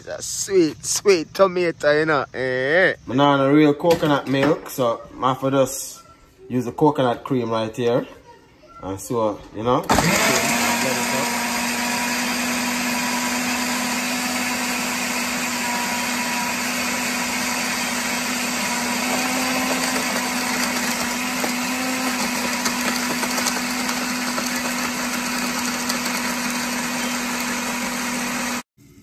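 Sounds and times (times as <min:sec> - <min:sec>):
blender motor whirring: 0:09.9 - 0:28.7.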